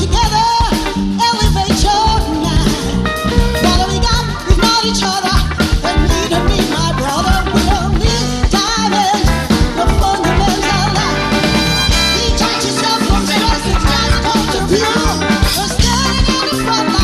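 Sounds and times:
live soul-disco band playing: 0.0s - 17.0s
woman singing lead: 0.0s - 17.0s.

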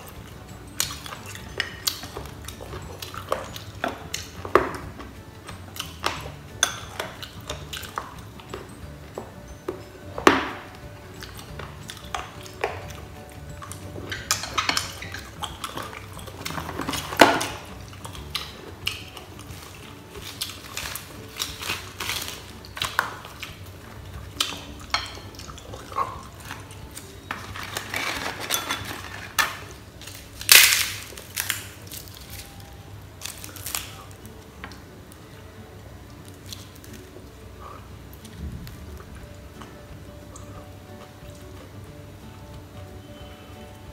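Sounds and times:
crunchy cracker bites: 30.1s - 32.5s, 33.2s - 34.2s.

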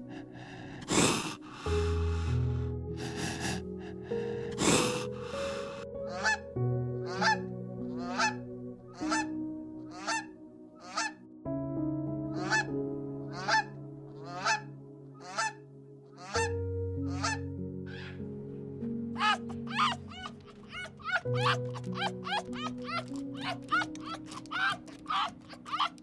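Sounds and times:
soft background music: 0.0s - 26.0s
geese honking: 4.2s - 6.4s, 7.1s - 8.4s, 9.0s - 11.2s, 12.4s - 12.7s, 13.3s - 15.6s, 16.2s - 18.2s, 19.2s - 26.0s.

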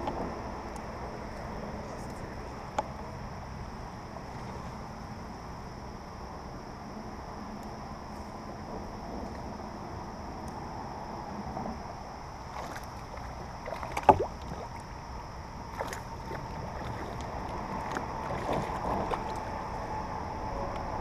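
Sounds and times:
fish splashing at the surface: 12.5s - 15.0s, 15.7s - 19.4s.

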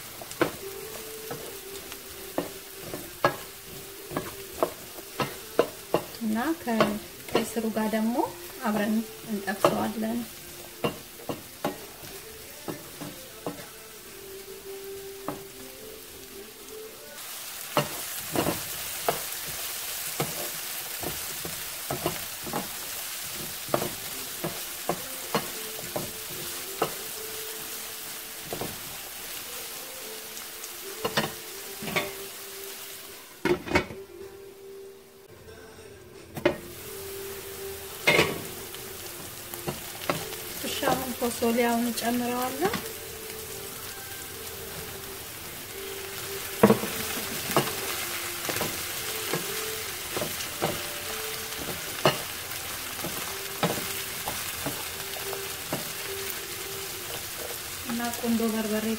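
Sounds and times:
vegetables sizzling in oil: 0.0s - 35.3s, 36.4s - 58.9s
spatula clicking and scraping pan: 2.3s - 7.6s, 17.8s - 27.1s, 46.5s - 52.4s.

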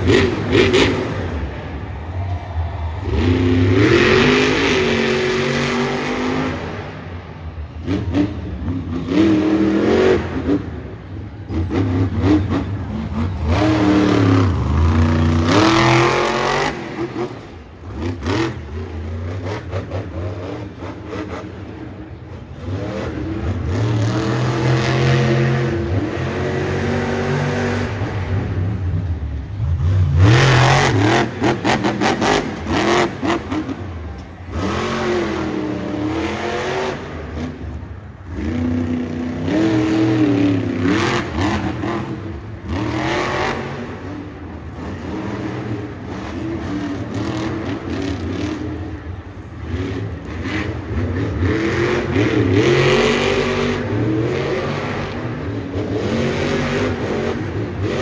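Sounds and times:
truck engine revving: 0.0s - 2.0s, 3.0s - 58.0s.

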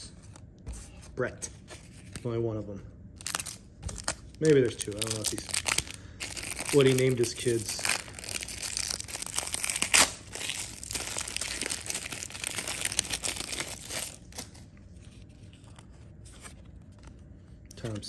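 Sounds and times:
foil wrapper crinkling: 3.2s - 14.6s.

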